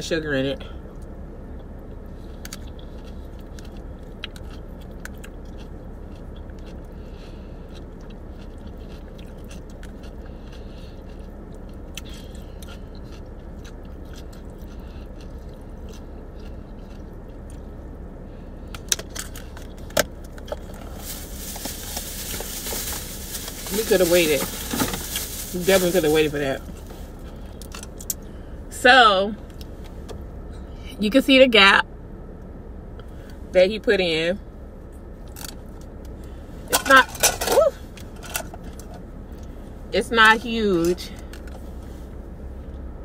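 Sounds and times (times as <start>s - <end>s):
steady low hum: 0.0s - 43.0s
person chewing: 2.0s - 17.9s, 18.6s - 23.8s
rustle: 20.7s - 27.3s.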